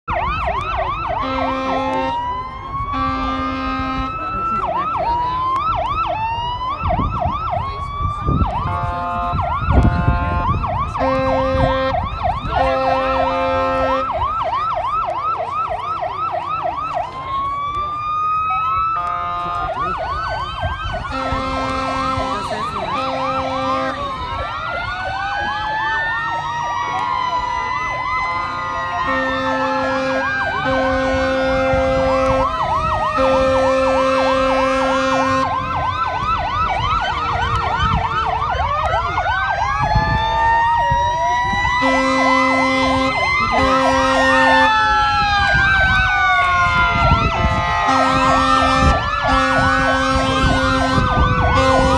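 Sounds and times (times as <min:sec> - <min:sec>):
emergency vehicle sirens wailing: 0:00.0 - 0:51.9
deep horn blasts: 0:01.2 - 0:02.2, 0:02.8 - 0:04.5, 0:08.3 - 0:14.2, 0:18.9 - 0:20.1, 0:21.0 - 0:24.3, 0:28.5 - 0:35.8, 0:41.6 - 0:51.9.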